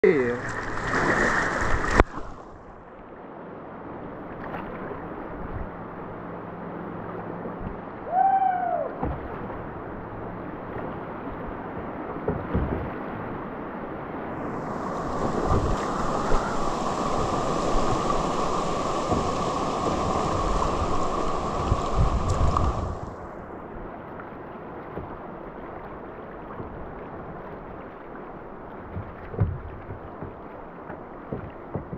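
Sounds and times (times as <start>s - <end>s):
paddle splashes: 0.0s - 3.2s, 3.8s - 8.1s, 8.7s - 13.6s, 14.2s - 31.9s
river current rushing: 0.0s - 4.2s, 13.2s - 23.9s
water slapping hull: 0.2s - 3.1s, 8.8s - 31.9s
falling cry: 8.1s - 9.0s.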